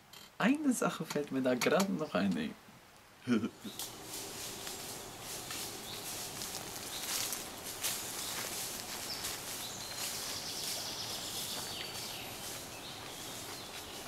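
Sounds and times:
leaves hissing: 3.2s - 14.0s
birds chirping: 3.3s - 14.0s
footsteps rustling through long grass: 3.6s - 14.0s.

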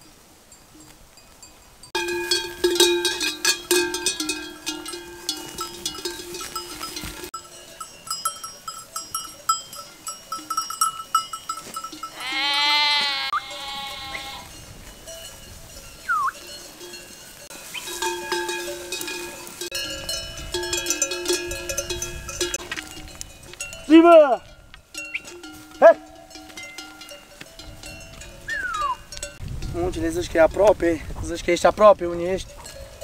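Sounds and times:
animal bells clanking: 0.0s - 33.0s
sheep bleating: 12.1s - 14.5s.

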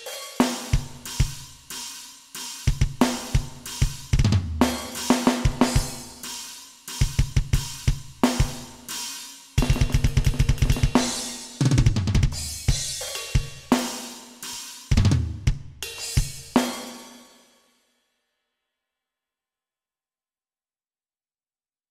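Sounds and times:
electronic drum kit playing: 0.0s - 17.1s.

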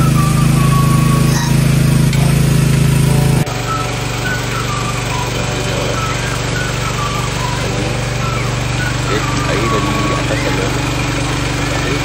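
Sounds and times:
small engine humming: 0.0s - 12.0s.

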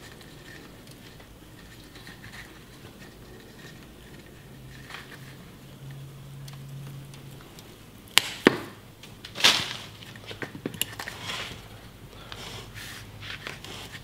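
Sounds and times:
branch cracking: 6.4s - 11.6s
branch snapping: 7.6s - 11.2s
rustle of foliage: 9.1s - 10.4s.

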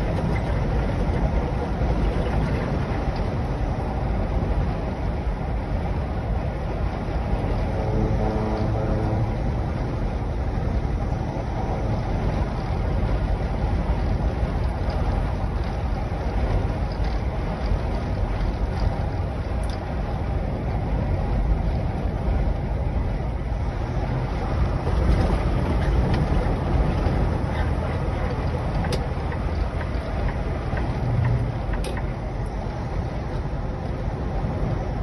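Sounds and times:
tyre and wind road noise: 0.0s - 35.0s.

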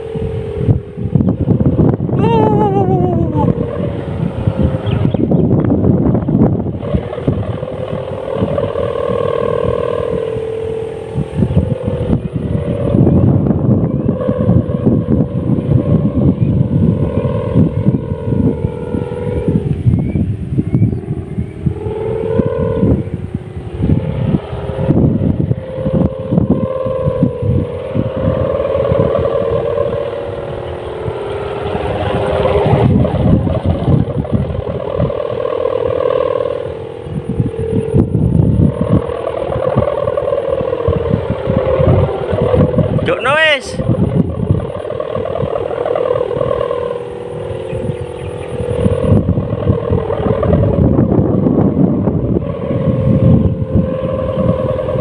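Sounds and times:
kite hummer droning: 0.0s - 55.0s
wind buffeting microphone: 0.0s - 55.0s.

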